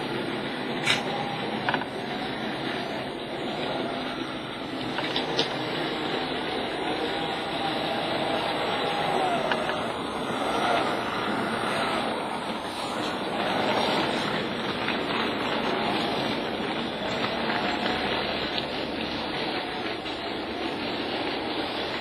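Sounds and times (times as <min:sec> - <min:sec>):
model train motor whining: 0:00.0 - 0:22.0
wheels rattling on rails: 0:00.0 - 0:22.0.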